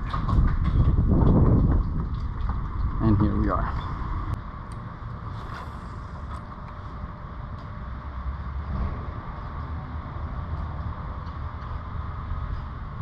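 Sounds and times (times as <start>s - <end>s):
water along kayak hull: 0.0s - 4.4s
wind on camera: 0.0s - 4.4s.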